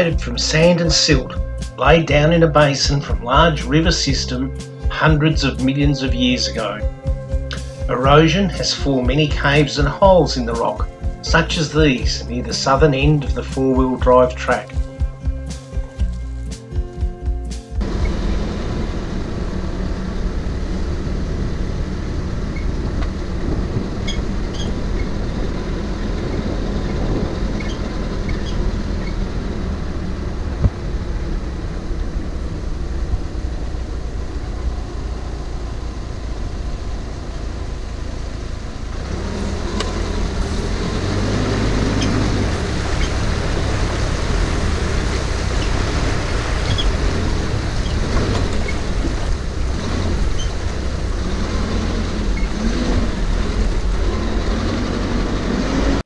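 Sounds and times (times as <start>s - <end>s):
water rushing and splashing: 0.0s - 16.9s, 17.8s - 56.0s
vehicle engine and tyre rumble: 0.0s - 56.0s
wind on microphone: 17.8s - 37.0s.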